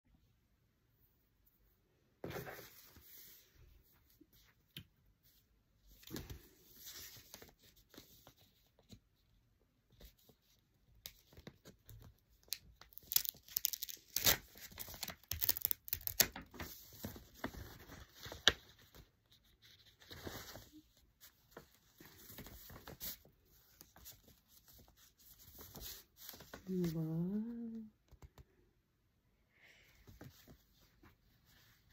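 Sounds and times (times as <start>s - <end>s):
packaging rustling and crinkling: 12.6s - 19.0s.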